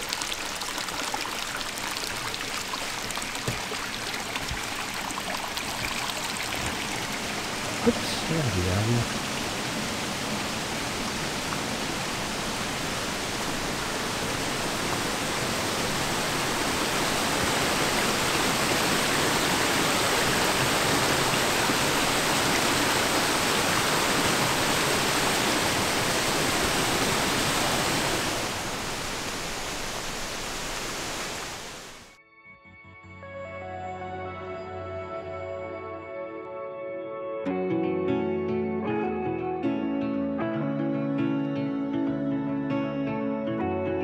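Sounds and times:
stream rushing over rocks: 0.0s - 32.1s.

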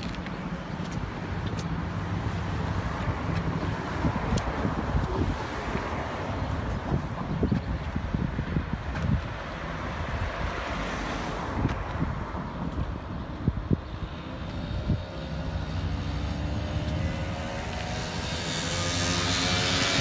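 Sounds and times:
car passing with tyre noise: 0.0s - 20.0s
wind buffeting microphone: 0.0s - 20.0s.

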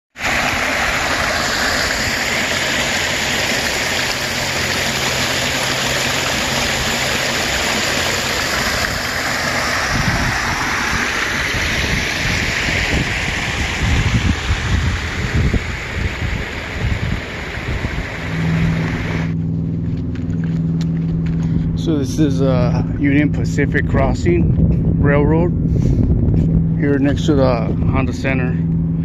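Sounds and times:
floodwater rushing over rocks: 0.1s - 19.4s
low irregular rumbles: 12.4s - 29.0s.

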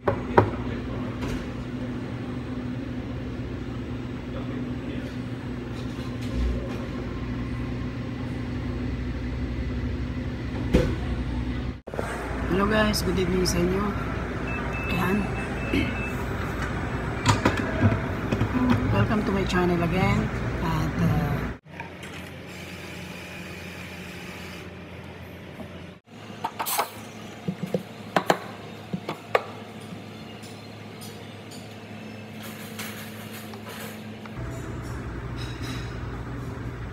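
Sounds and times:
low mechanical hum: 0.0s - 36.9s.

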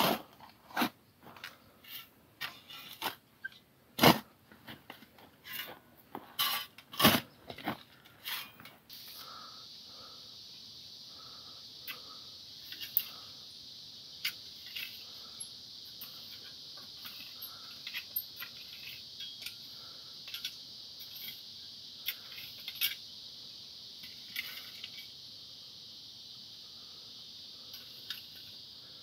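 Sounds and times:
rake scraping stony ground: 0.0s - 9.3s
high insect drone: 0.0s - 29.0s.

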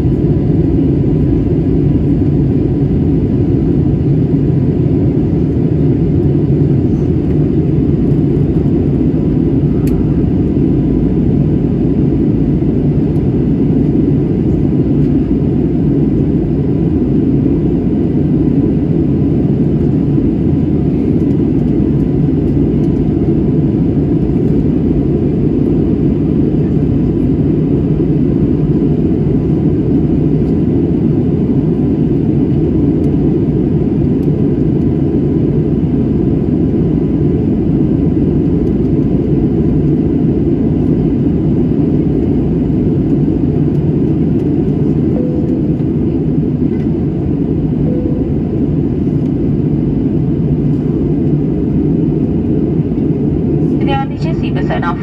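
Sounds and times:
jet engine and airflow rumble: 0.0s - 55.0s
faint steady whine: 43.1s - 55.0s.

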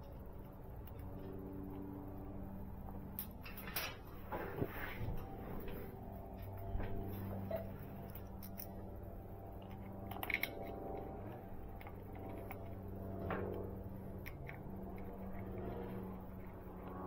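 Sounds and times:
steady low hum: 0.0s - 17.0s
small metallic clicks: 7.4s - 8.9s, 9.5s - 17.0s.

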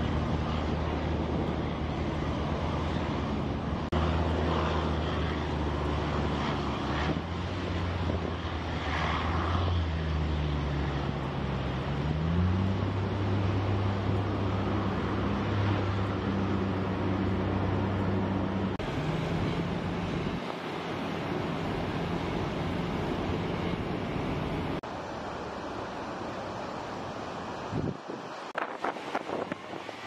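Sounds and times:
vehicle engine droning: 0.0s - 30.0s
waves rushing: 0.0s - 30.0s.

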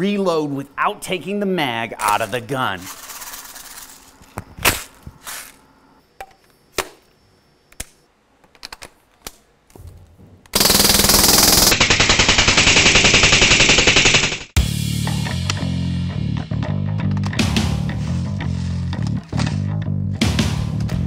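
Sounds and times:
bb rifle firing full-auto burst: 10.6s - 14.6s.

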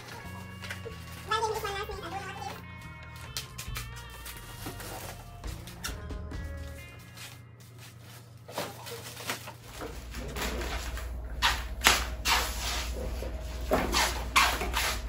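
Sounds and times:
plastic packages crinkling: 0.0s - 5.9s, 7.1s - 11.2s.

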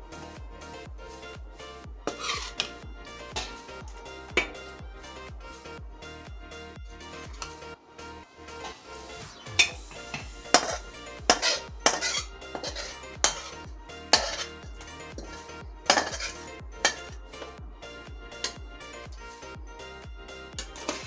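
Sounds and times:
background music with steady beat: 0.0s - 21.0s
metal tongs clanking on pot rim: 9.6s - 17.6s, 18.4s - 18.6s, 20.6s - 21.0s.

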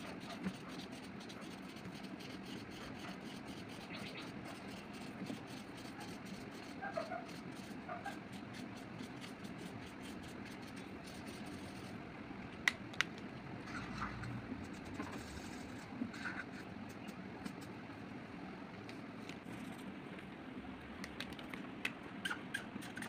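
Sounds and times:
marker scratching on paper: 0.0s - 12.0s, 13.7s - 17.8s, 19.4s - 19.9s.

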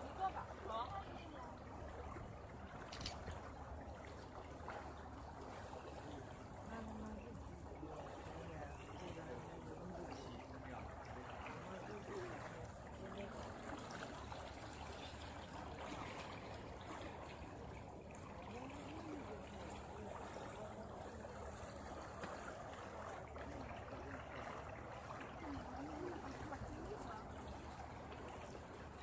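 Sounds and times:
water rushing along boat hull: 0.0s - 29.0s
faint voices: 5.4s - 29.0s.

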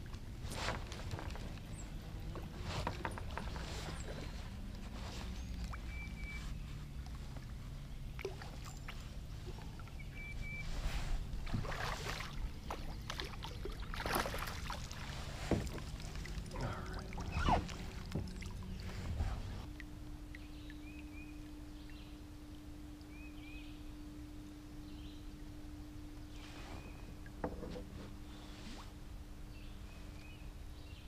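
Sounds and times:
steady low hum: 0.0s - 31.0s
faint bird chirps: 5.1s - 9.0s, 9.6s - 10.9s, 20.3s - 22.2s
fish splashing and thrashing: 11.3s - 19.5s.

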